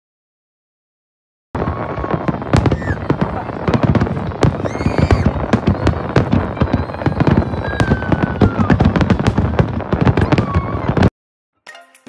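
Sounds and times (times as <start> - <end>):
firework bangs and crackles: 1.6 - 11.1
firework whistles: 1.6 - 11.1
soft music: 11.6 - 12.0.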